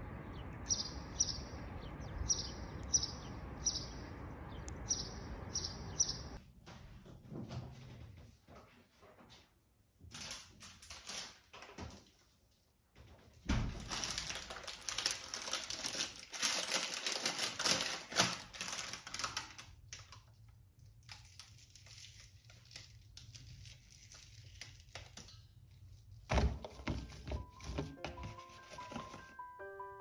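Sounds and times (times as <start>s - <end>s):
plastic wrapping crinkling: 10.1s - 11.8s, 13.7s - 26.3s
vegetables being handled: 13.8s - 19.7s, 20.9s - 29.4s.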